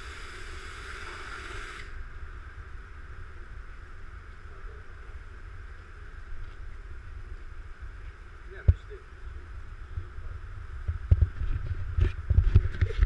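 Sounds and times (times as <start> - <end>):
pressure washer spraying water: 0.0 - 1.9
low rumble: 1.9 - 13.0.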